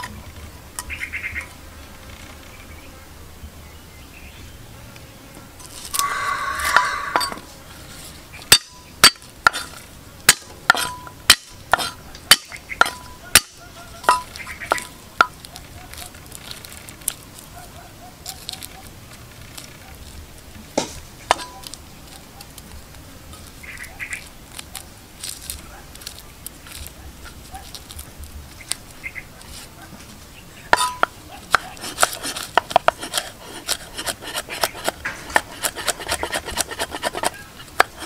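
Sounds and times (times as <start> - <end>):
metal utensil knocking on pan: 30.8 - 31.1.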